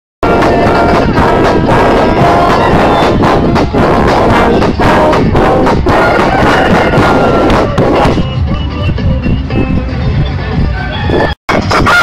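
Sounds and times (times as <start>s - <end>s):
marching brass band playing: 0.2s - 8.6s.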